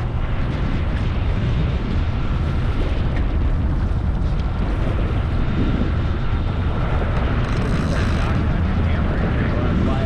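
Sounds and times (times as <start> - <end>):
outboard engines: 0.0 - 10.0
sea: 0.0 - 10.0
wind buffeting microphone: 0.0 - 10.0.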